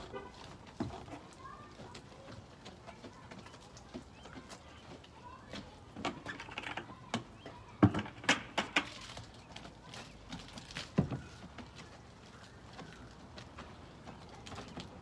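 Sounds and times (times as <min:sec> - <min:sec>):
plastic bucket clacks and knocks: 0:05.9 - 0:09.2.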